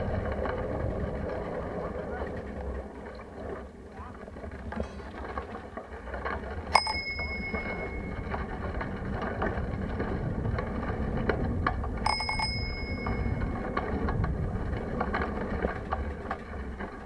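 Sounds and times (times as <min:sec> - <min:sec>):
bicycle rolling on concrete: 0:00.0 - 0:17.0
bicycle bell ringing: 0:06.7 - 0:08.4, 0:12.0 - 0:13.7.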